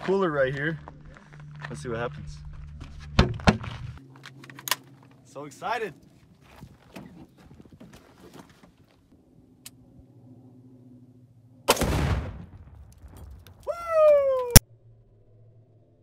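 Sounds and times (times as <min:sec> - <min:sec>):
rifle shot: 0:11.7 - 0:12.8
explosive target blast: 0:11.7 - 0:13.4.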